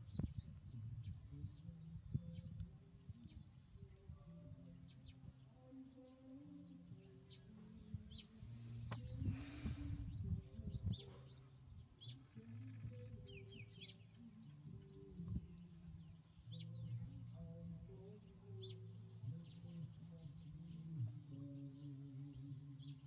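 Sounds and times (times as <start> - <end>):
noisy rustling: 7.6 - 11.9.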